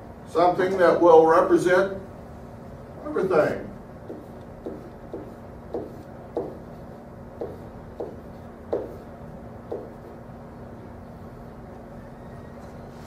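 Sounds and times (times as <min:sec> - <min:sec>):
steady low hum: 0:00.0 - 0:13.0
pen writing on a whiteboard: 0:04.0 - 0:10.2.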